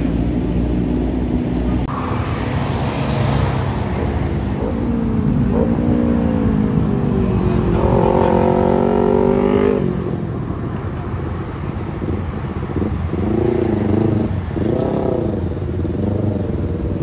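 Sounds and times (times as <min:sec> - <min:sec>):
road traffic noise: 0:00.0 - 0:17.0
motorcycle engine revving: 0:07.6 - 0:10.2.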